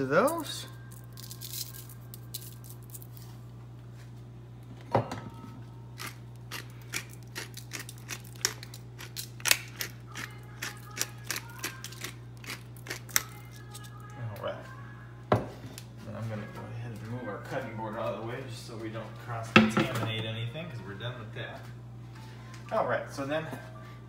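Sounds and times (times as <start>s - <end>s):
steady low hum: 0.0s - 24.0s
pepper grinder clicking: 6.0s - 13.9s.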